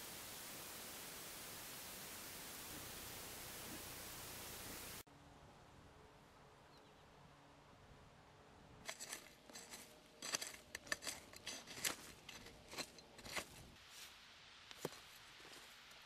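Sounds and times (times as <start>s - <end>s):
metal blade scraping dry soil: 8.8s - 13.8s.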